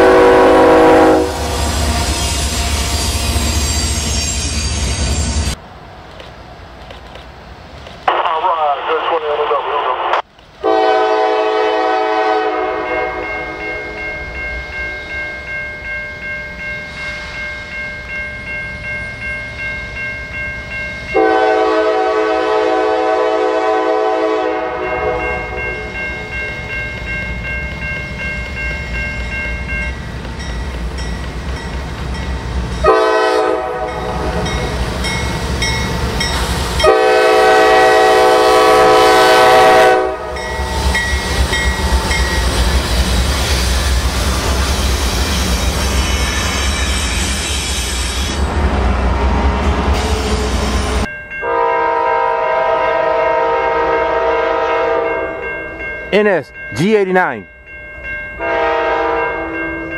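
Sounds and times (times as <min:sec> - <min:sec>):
locomotive air horn: 0:00.0 - 0:01.6, 0:10.6 - 0:13.6, 0:21.2 - 0:25.6, 0:32.8 - 0:34.5, 0:36.8 - 0:40.4, 0:51.4 - 0:55.4, 0:58.4 - 0:59.6.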